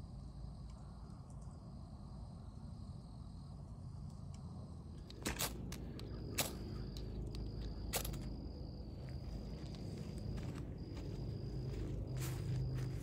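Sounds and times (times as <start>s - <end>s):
high insect drone: 0.0s - 13.0s
low steady rumble: 0.0s - 13.0s.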